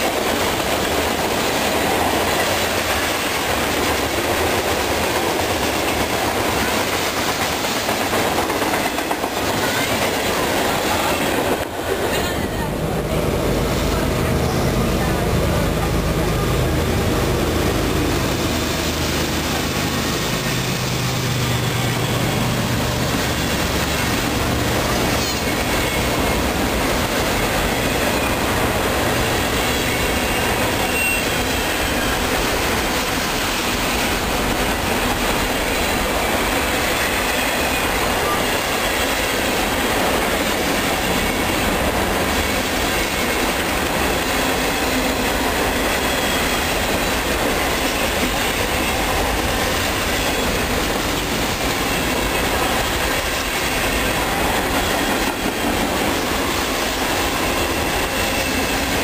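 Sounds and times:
clickety-clack over rail joints: 0.0s - 12.6s, 21.5s - 59.0s
freight train wheels rumbling: 0.0s - 59.0s
diesel locomotive hum: 8.6s - 59.0s.

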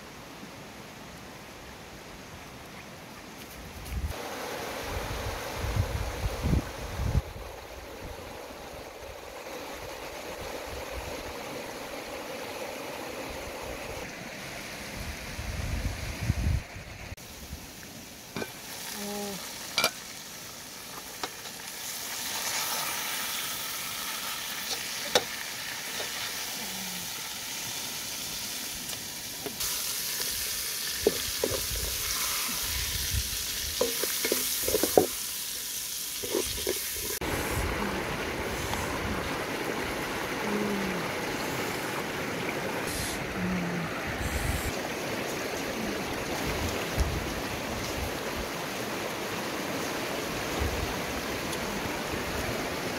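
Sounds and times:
food sizzling in a pot: 17.2s - 37.6s
metal lid clinking: 19.8s - 20.0s
river rushing over stones: 36.2s - 52.9s.

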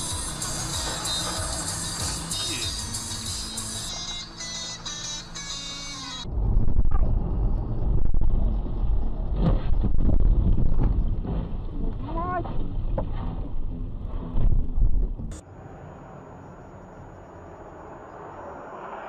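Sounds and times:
car engine and road rumble: 0.0s - 19.0s
wind on microphone: 6.3s - 15.3s.

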